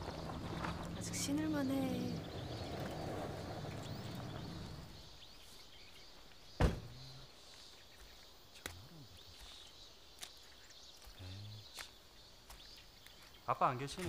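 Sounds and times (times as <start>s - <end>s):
faint birdsong: 0.0s - 14.0s.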